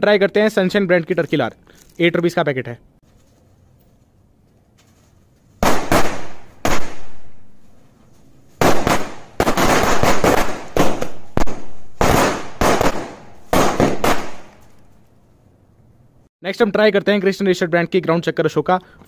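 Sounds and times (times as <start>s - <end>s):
firecracker string bangs: 5.6s - 7.4s, 8.6s - 14.7s.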